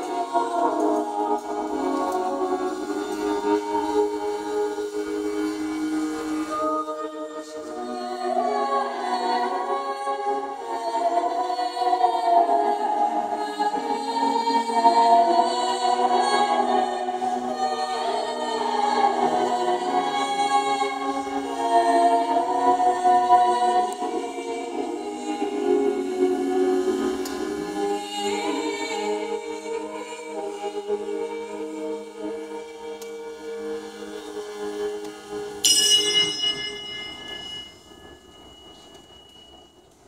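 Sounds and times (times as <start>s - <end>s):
voices singing slow melody: 0.0s - 40.0s
organistrum drone: 32.2s - 39.5s.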